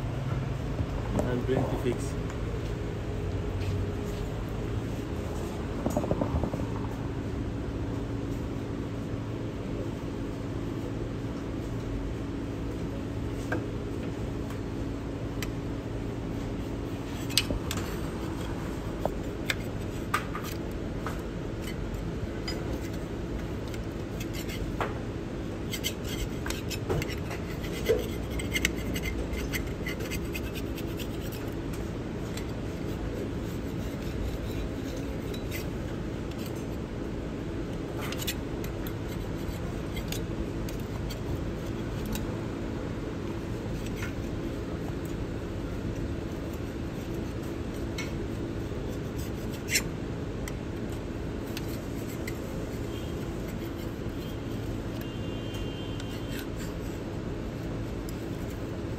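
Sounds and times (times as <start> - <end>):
steady low hum: 0.0 - 58.9
metal scraper scraping sealant: 25.6 - 31.6, 32.8 - 36.7, 55.8 - 57.0.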